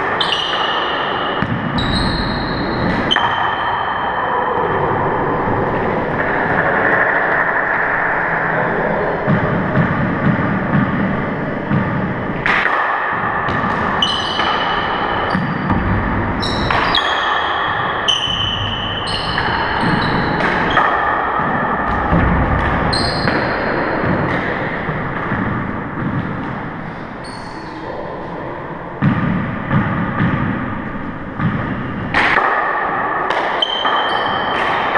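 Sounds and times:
sneakers squeaking on floor: 0.0s - 4.2s, 13.5s - 26.6s, 27.2s - 27.8s, 33.6s - 34.8s.

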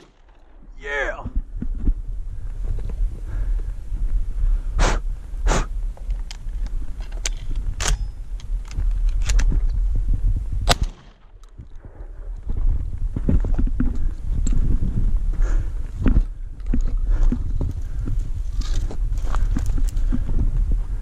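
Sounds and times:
steady low rumble: 0.0s - 21.0s
footsteps crunching on gravel: 16.8s - 21.0s.

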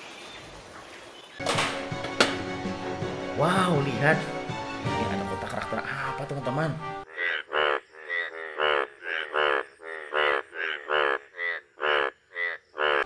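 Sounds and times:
frog croaking: 7.0s - 13.0s.

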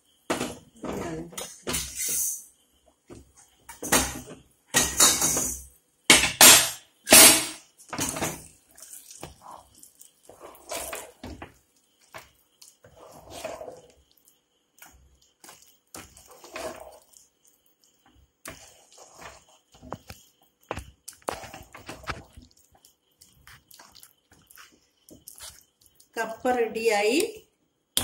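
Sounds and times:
steel spoon scraping a pot: 1.7s - 2.5s, 10.3s - 11.2s, 12.8s - 14.0s, 14.8s - 17.3s, 18.5s - 20.2s.

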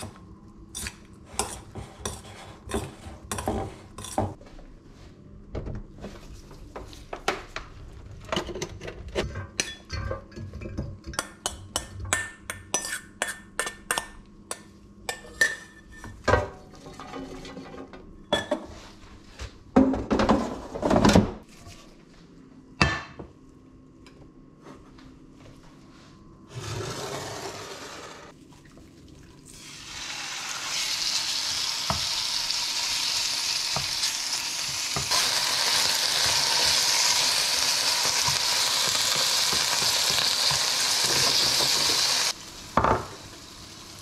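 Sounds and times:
kitchen clatter: 15.1s - 18.7s.

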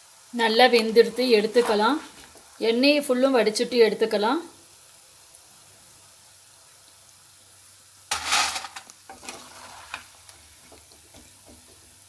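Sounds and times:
hot oil sizzling: 0.0s - 12.0s
ladle scraping in oil: 8.1s - 10.1s
clicks and crackles: 8.1s - 10.4s.

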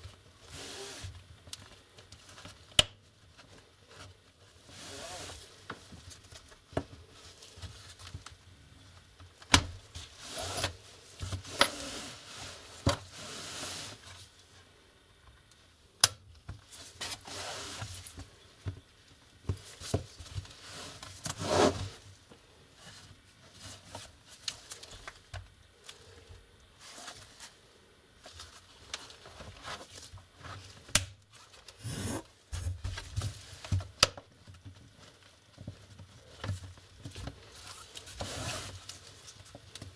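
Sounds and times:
plastic rubbing and scraping: 26.8s - 39.9s.

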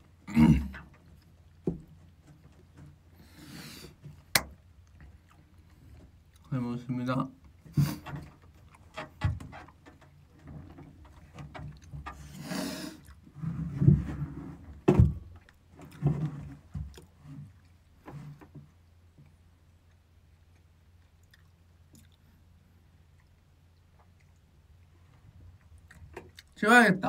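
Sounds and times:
man's low vocal sounds: 0.2s - 0.8s
breathy exhale: 3.2s - 4.0s, 12.3s - 13.1s
office chair thumps and knocks: 14.8s - 15.3s.

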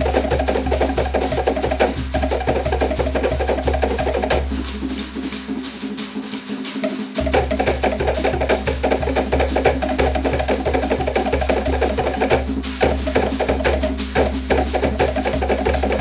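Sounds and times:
slit log drums rattling: 0.0s - 16.0s
deep bass drum: 7.2s - 16.0s.

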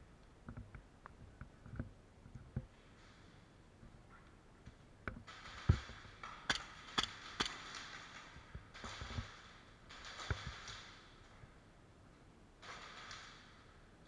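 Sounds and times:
airsoft gunfire snaps: 5.3s - 8.0s.

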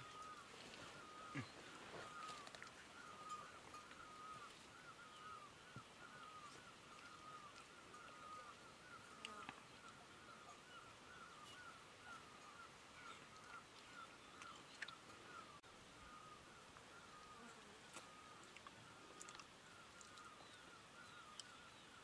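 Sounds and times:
bird chirping: 0.0s - 22.0s
outdoor ambience: 0.0s - 22.0s.

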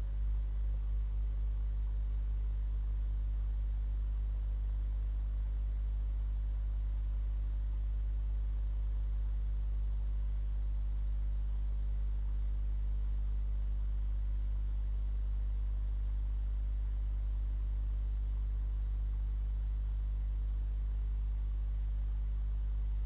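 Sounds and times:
faint hiss: 0.0s - 23.0s
low electrical hum: 0.0s - 23.0s.

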